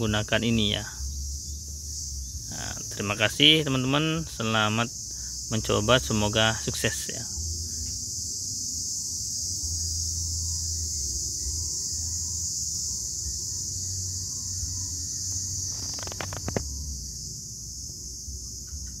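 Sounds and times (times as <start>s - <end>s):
crickets chirping: 0.0s - 19.0s
sharp clicks: 15.7s - 16.7s.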